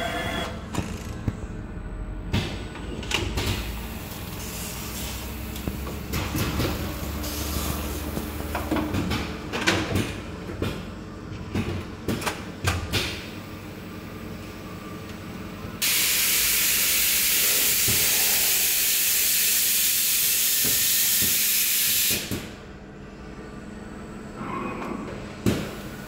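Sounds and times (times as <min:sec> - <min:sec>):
hum of conveyors and motors: 0:00.0 - 0:15.8, 0:22.2 - 0:26.0.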